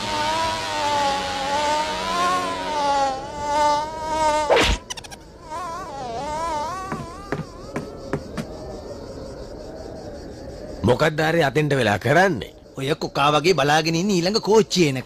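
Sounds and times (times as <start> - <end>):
cartoon fly buzzing: 0.0 - 8.2.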